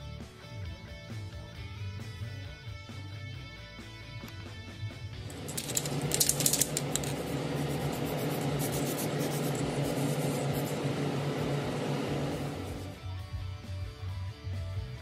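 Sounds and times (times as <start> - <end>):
fan humming: 5.2 - 13.0.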